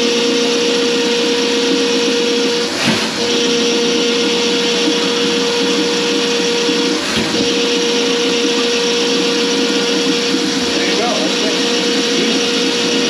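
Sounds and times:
electric motor whining: 0.0s - 13.0s.

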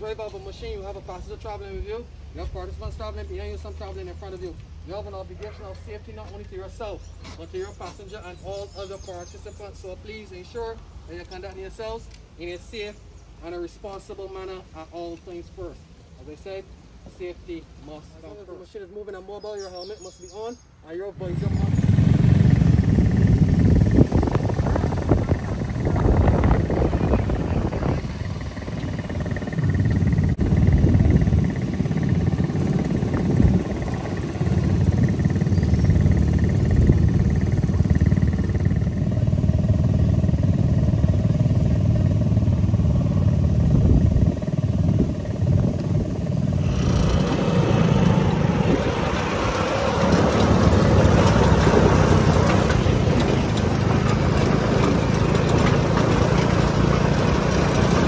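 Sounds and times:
buggy engine running: 0.0s - 12.1s, 21.2s - 58.0s
broad rushing noise: 21.2s - 58.0s.

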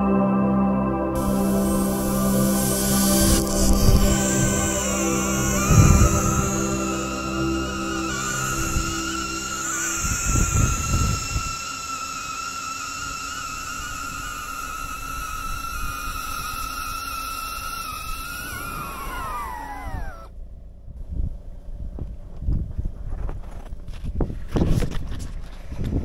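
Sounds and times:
wind buffeting: 1.2s - 20.3s
drone propellers whining: 1.2s - 20.4s.

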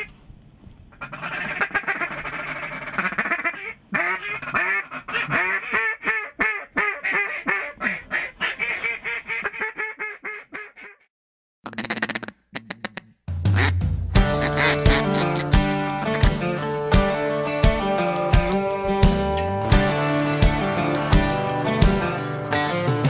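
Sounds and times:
duck quacking: 1.0s - 16.2s.

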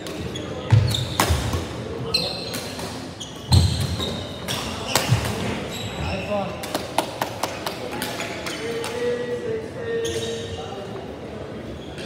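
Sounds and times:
shoes squeaking on court floor: 0.0s - 6.6s, 9.9s - 10.8s, 11.6s - 12.0s.

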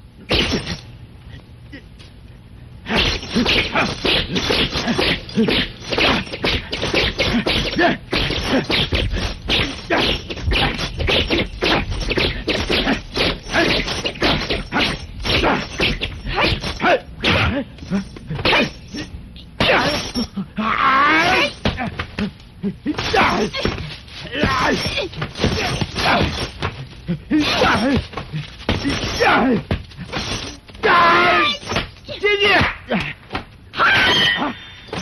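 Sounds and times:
punch impacts: 2.9s - 17.6s.

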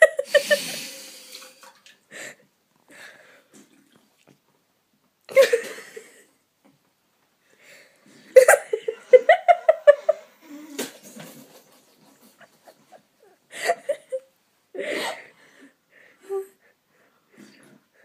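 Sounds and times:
person laughing: 0.0s - 1.1s, 8.4s - 14.3s.

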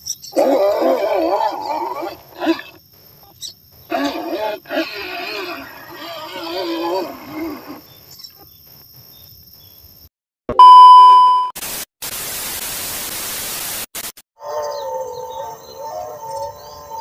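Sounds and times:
electronic beep: 10.5s - 11.5s
static hiss: 11.6s - 14.2s.

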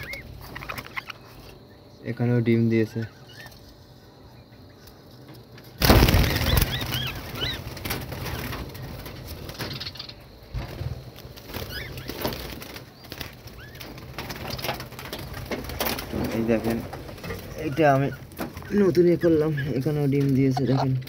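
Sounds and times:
budgerigars chirping: 0.0s - 1.6s, 6.0s - 8.6s, 11.6s - 12.3s, 12.9s - 14.7s, 16.4s - 20.8s.

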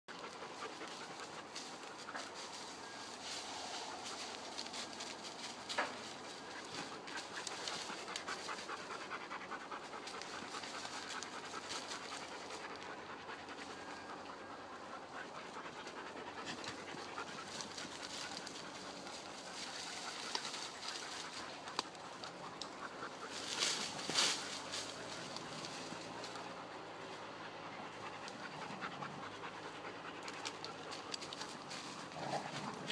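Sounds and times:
dog panting: 0.1s - 32.9s
dry leaves crackling underfoot: 0.3s - 9.0s, 16.6s - 27.2s, 30.3s - 32.9s.

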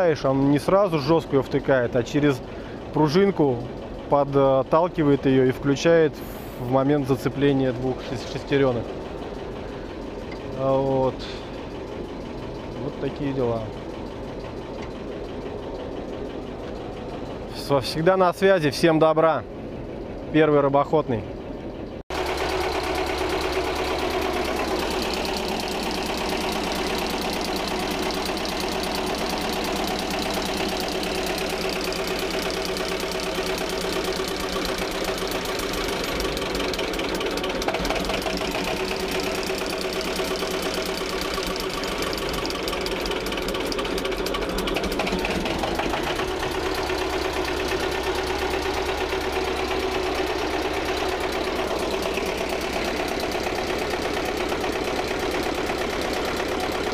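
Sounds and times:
diesel boat engine running: 0.0s - 56.9s.

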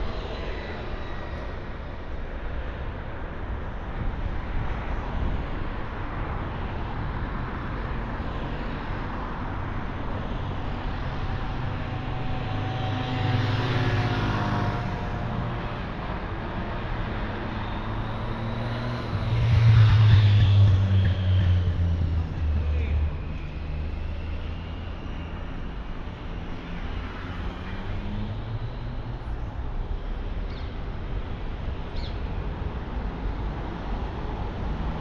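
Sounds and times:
cars driving past: 4.0s - 35.0s
heavy low engine rumble: 18.2s - 23.7s.

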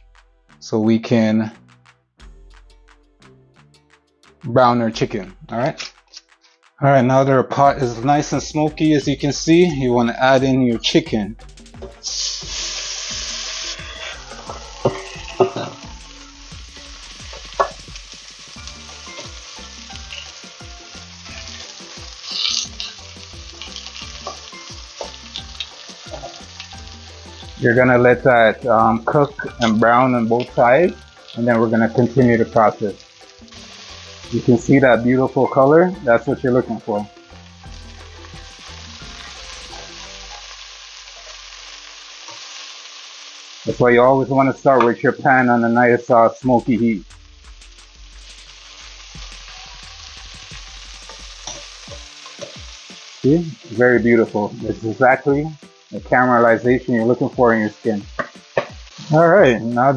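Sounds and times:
chicken sizzling in oil: 11.7s - 59.9s
metal tongs turning meat: 13.6s - 15.9s, 17.3s - 17.9s, 18.7s - 27.6s, 49.3s - 52.6s
utensil knocking and scraping pot: 17.3s - 17.9s.

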